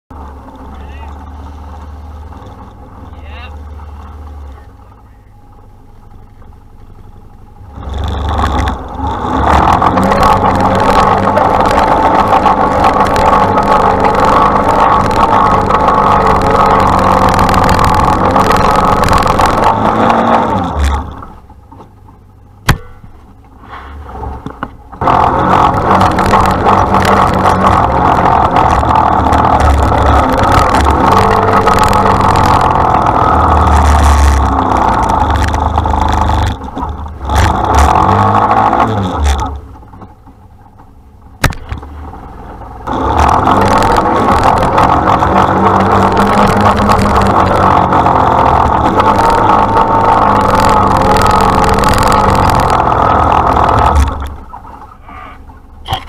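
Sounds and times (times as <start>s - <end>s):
engine running hard under load: 0.1s - 56.0s
sharp click: 41.4s - 41.9s.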